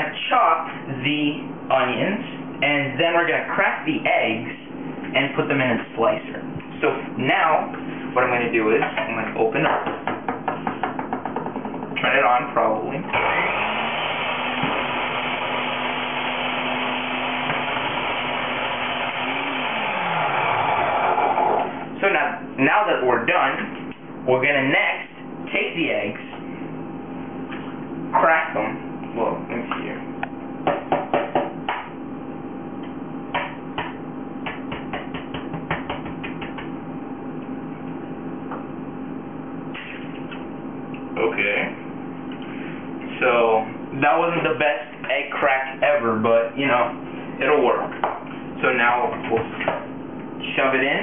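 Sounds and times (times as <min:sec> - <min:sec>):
faint steady hum: 0:00.0 - 0:51.0
food chopper motor whine: 0:13.1 - 0:21.9
eggs being tapped and cracked: 0:33.4 - 0:36.7.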